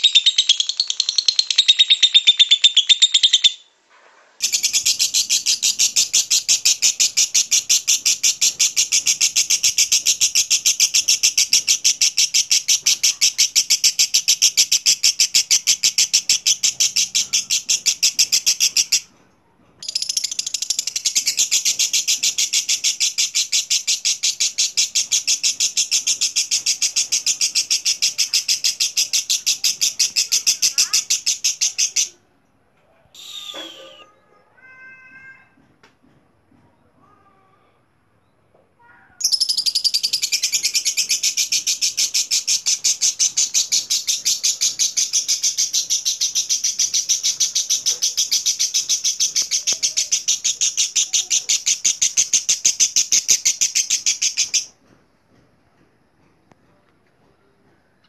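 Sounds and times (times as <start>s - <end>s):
bird chattering trill: 0.0s - 3.6s, 19.8s - 32.1s, 33.2s - 34.1s, 39.2s - 54.7s.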